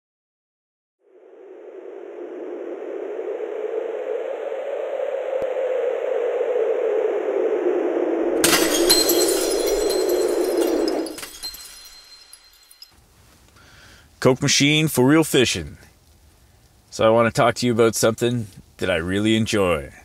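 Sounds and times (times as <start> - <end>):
whooshing rush: 1.0 - 8.5
glass shattering crash: 8.4 - 12.9
tinkling shards: 8.4 - 13.0.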